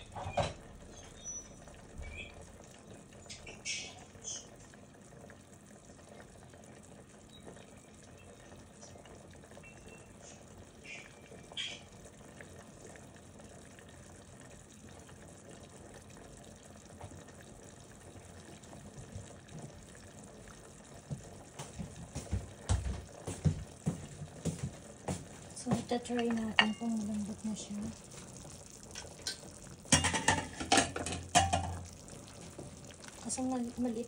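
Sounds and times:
pot bubbling: 0.0 - 34.0
knocks and clinks against pot: 26.0 - 26.9, 29.0 - 31.9.

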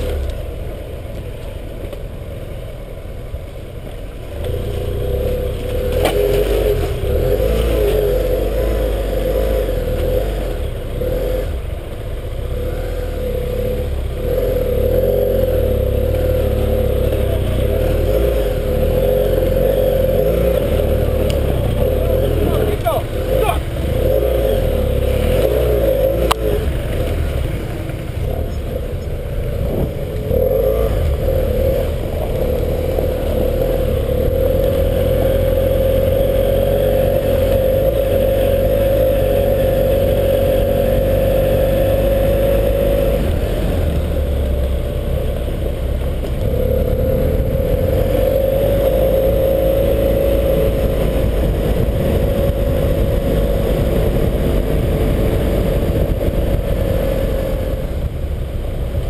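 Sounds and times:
motorcycle engine running: 0.0 - 59.0
wind rumble: 0.0 - 59.0.

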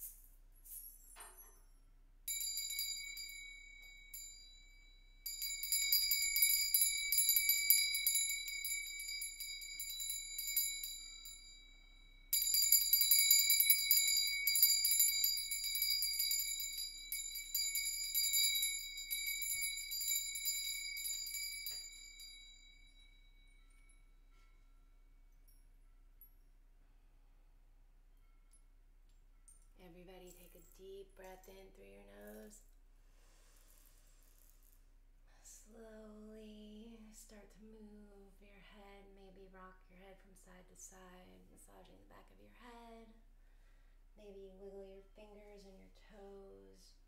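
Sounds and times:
metal chimes ringing: 0.6 - 26.6.

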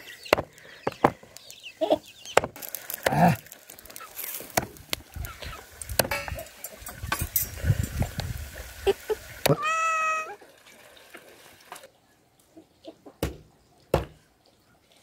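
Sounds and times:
chicken calling: 8.8 - 10.4.

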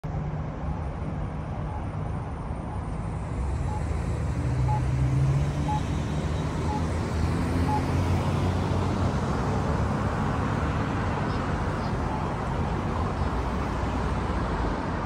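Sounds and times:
road traffic: 0.0 - 15.0
short beeps: 4.6 - 4.9, 5.6 - 5.9, 6.6 - 6.9, 7.7 - 7.9.

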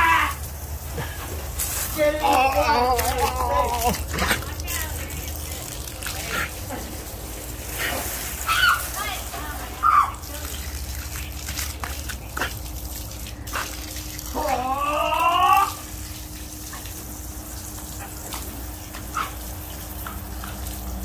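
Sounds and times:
garden hose spraying: 0.0 - 21.0
dog whine-howl: 14.3 - 15.8.

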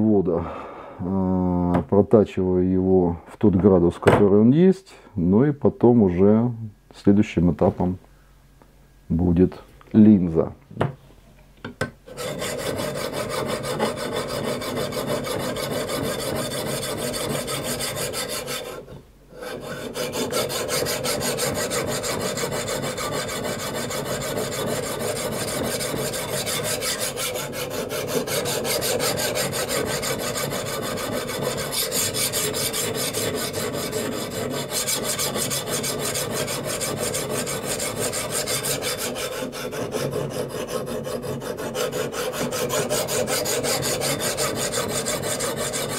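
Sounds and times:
abrasive grinding knife edge: 19.4 - 45.9.

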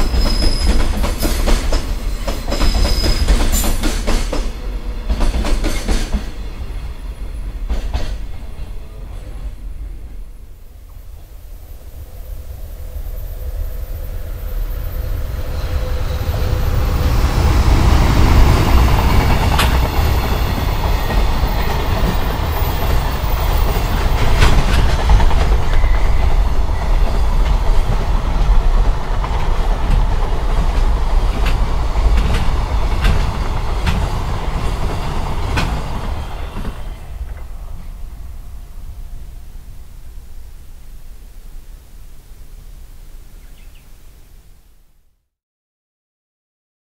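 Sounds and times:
wheels clacking over rail joints: 0.0 - 6.5, 16.4 - 37.8
train low rumble: 0.0 - 43.7.

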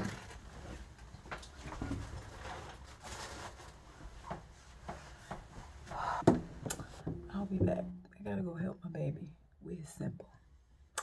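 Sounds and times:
rustling of things handled: 0.0 - 7.3.

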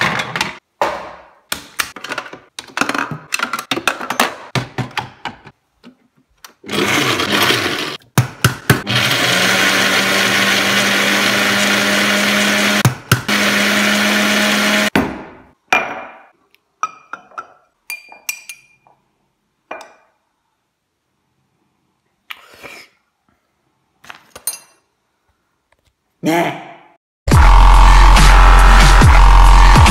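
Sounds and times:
blender running: 6.7 - 8.0, 8.8 - 14.9, 27.3 - 29.9.

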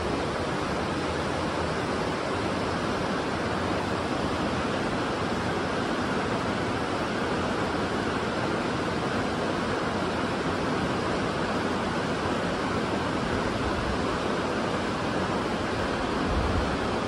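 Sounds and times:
river rapids rushing: 0.0 - 17.0.

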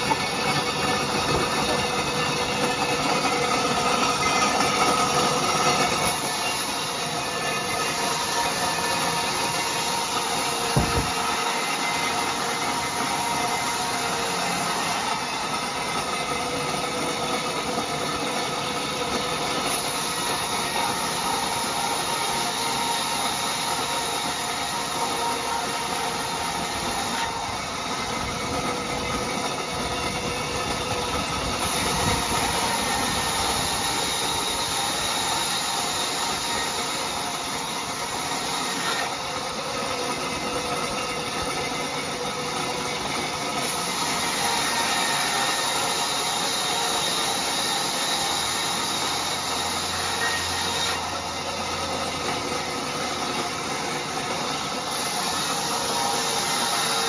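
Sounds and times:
band saw whine: 0.0 - 57.0
saw blade cutting wood: 0.0 - 57.0.

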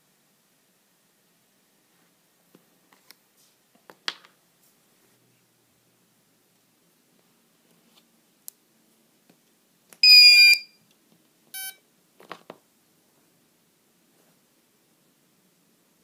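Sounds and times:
motor beeps: 10.0 - 10.8, 11.6 - 11.8.

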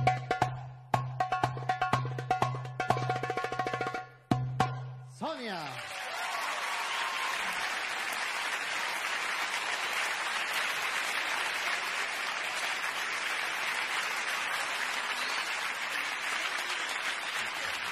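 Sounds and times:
audience applauding: 5.3 - 17.9.

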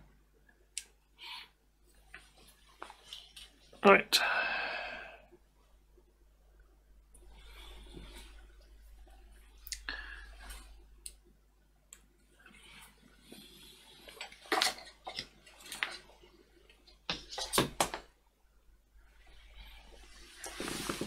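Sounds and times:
low steady hum: 0.0 - 21.0
clatter on a workbench: 14.1 - 16.0.

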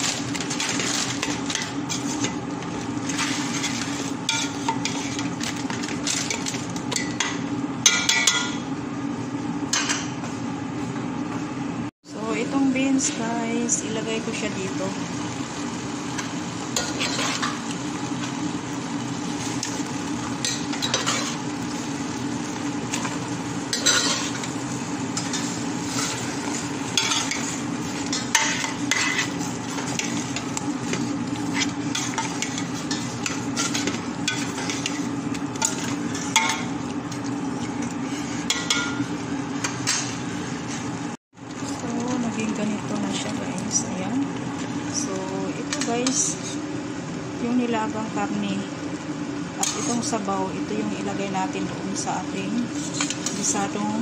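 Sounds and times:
food sizzling: 0.0 - 8.9, 12.2 - 54.0
constant low hum: 0.0 - 54.0
metal spatula scraping pot: 16.8 - 17.6, 20.4 - 21.4, 22.9 - 24.5, 25.1 - 36.7, 37.6 - 39.0, 52.7 - 53.7.

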